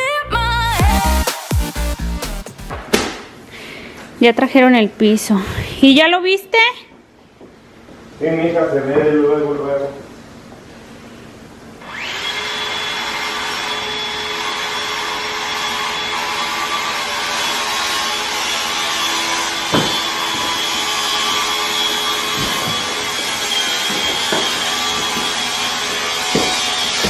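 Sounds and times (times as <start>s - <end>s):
power tool whining: 11.8s - 27.0s.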